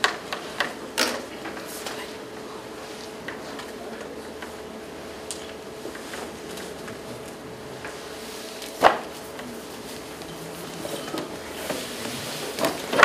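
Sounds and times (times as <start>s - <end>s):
steady hum: 0.0s - 13.0s
paper sheets rustling: 5.8s - 13.0s.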